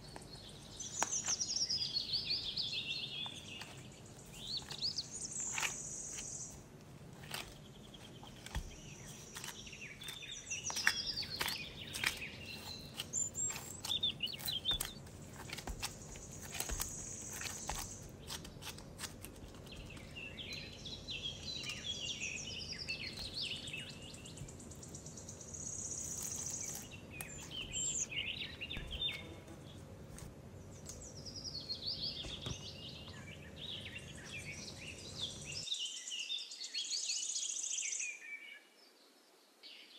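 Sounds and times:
birds chirping and singing: 0.0 - 6.6, 7.2 - 18.6, 19.4 - 29.9, 30.7 - 38.6
hands kneading dough: 0.0 - 20.8.

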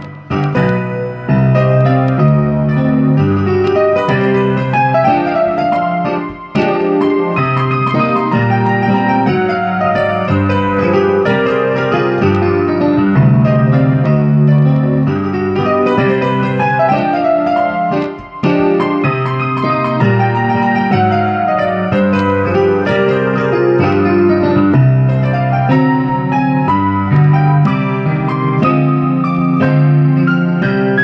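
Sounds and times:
electronic keyboard chords and bass: 0.0 - 31.0.

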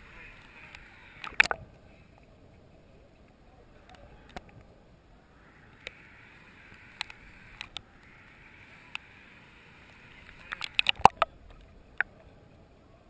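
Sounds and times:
faint underwater hiss: 0.0 - 13.0
underwater clicks and knocks: 1.2 - 1.6, 10.4 - 12.1.

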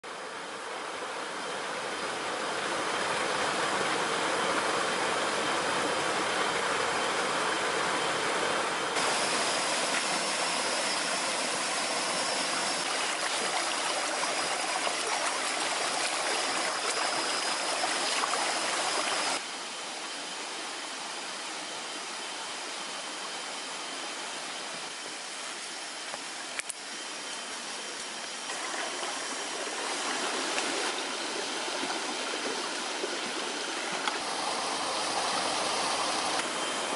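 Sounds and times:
stream splashing over stones: 9.0 - 19.4, 28.5 - 36.6.

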